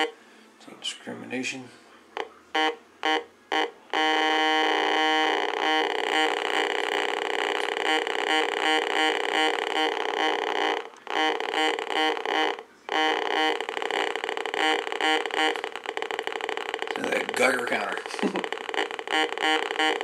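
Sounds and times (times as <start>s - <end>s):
metal detector beeps and buzzy tone: 2.5s - 20.0s.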